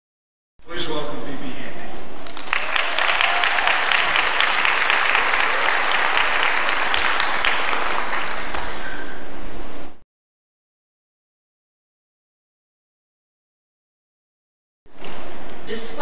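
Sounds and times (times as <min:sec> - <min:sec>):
audience applauding: 0:02.2 - 0:09.2.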